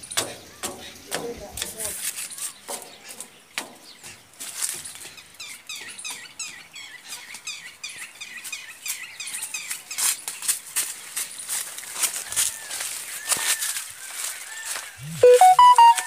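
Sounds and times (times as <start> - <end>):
footsteps on dry leaves: 8.3 - 15.2.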